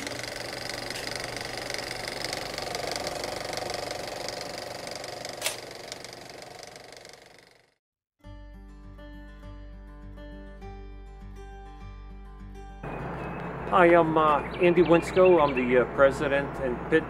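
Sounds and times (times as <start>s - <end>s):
film projector clattering: 0.0s - 7.8s.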